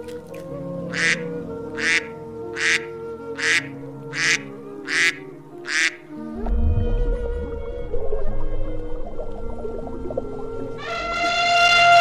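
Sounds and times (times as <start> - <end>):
soft background music: 0.0 - 12.0
duck quacking: 0.9 - 1.2, 1.8 - 6.0.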